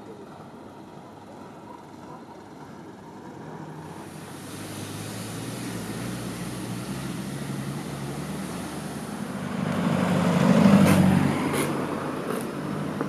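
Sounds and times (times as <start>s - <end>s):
car driving past: 3.5s - 13.0s.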